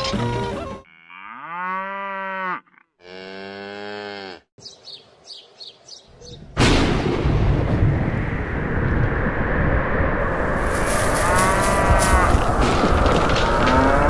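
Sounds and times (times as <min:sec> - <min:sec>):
cow mooing: 0:00.8 - 0:04.5
loud noisy sound: 0:07.8 - 0:14.0.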